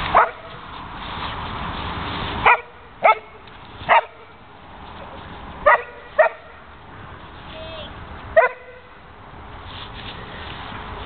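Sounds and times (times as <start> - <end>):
dog barking: 0.1 - 0.5, 2.4 - 4.2, 5.6 - 6.5, 8.4 - 8.8.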